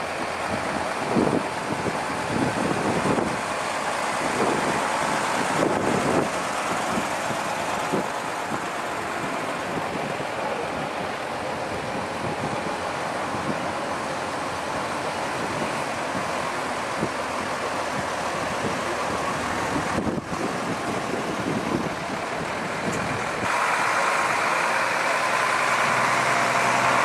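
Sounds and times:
wind noise on microphone: 0.0 - 23.6
fire engines driving past: 0.0 - 27.0.

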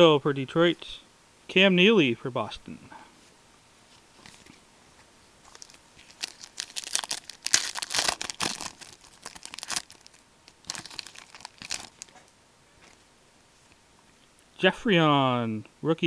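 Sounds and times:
wrapper tearing and crinkling: 5.5 - 12.3.

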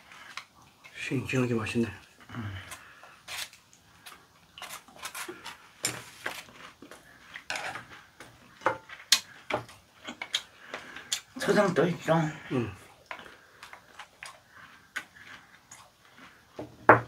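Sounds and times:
chewing: 2.0 - 11.4, 12.7 - 16.6.

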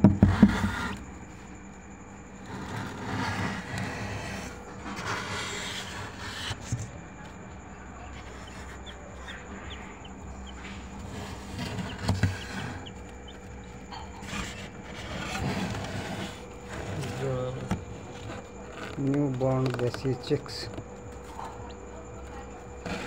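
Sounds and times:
steady background hum: 0.0 - 23.0
chicks peeping: 8.0 - 15.0
dull thumps: 8.2 - 15.5.

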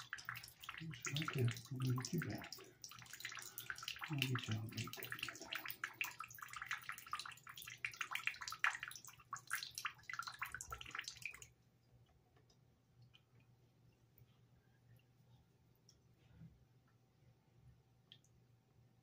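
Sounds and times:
water splashing and running: 0.0 - 11.5.

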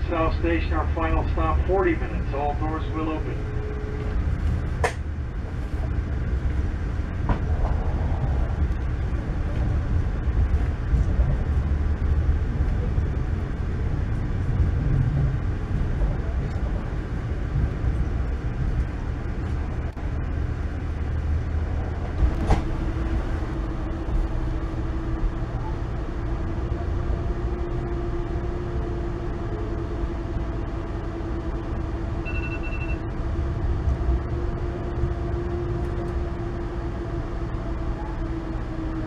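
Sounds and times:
steady hum: 0.0 - 39.0
train wheels rumbling on rails: 0.0 - 39.0
short high beep: 32.2 - 33.1.

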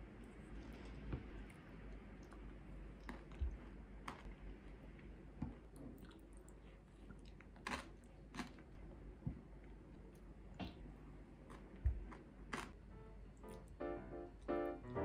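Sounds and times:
faint chewing: 0.1 - 8.8.

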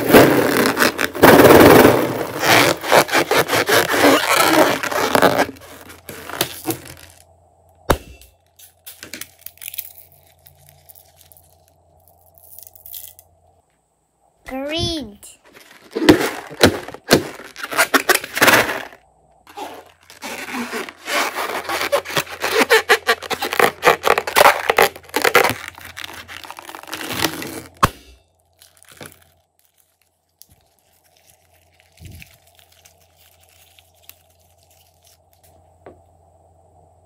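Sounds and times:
hands rubbing rubber balloon: 2.2 - 7.2, 19.5 - 27.8
faint handling sounds: 8.5 - 13.9, 14.9 - 17.8, 28.5 - 36.1.

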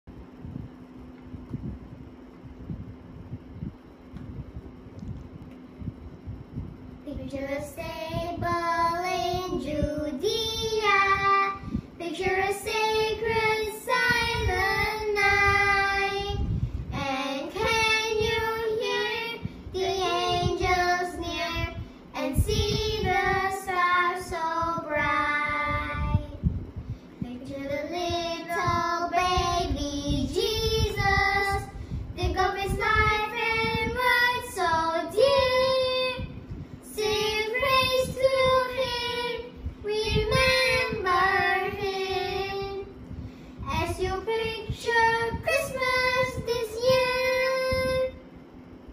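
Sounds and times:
girl singing: 7.0 - 43.0, 43.6 - 48.3
boy singing: 17.0 - 26.3.

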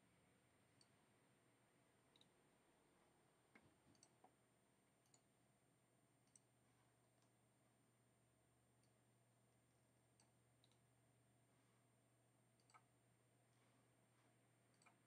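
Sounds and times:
faint computer mouse clicks: 2.1 - 2.3, 3.6 - 4.4, 10.2 - 10.8, 12.6 - 12.9, 14.7 - 15.0.

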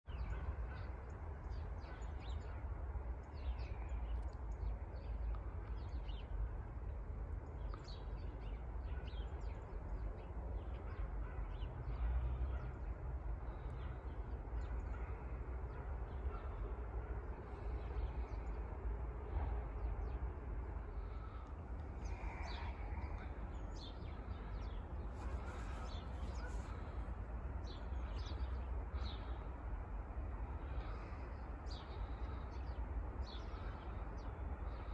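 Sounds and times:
steady low rumble: 2.7 - 34.9
birds calling: 20.8 - 29.7, 30.3 - 34.9.

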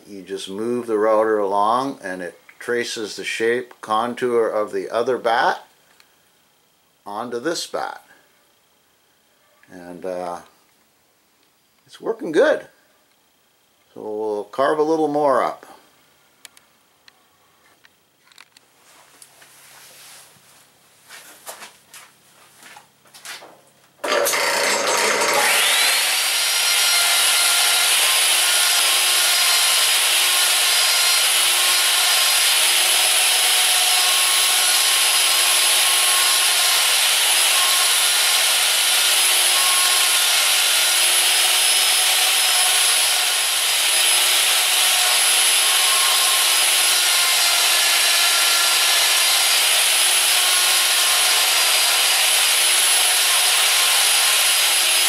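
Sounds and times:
wood router whining: 24.0 - 55.0.

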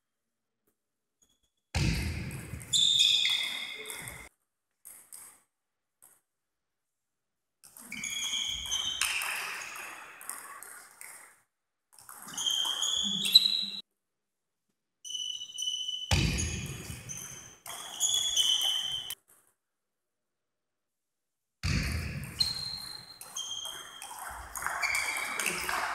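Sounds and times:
shoes squeaking on floor: 2.7 - 4.3, 7.7 - 10.2, 12.1 - 13.8, 15.0 - 19.2, 22.3 - 25.9.

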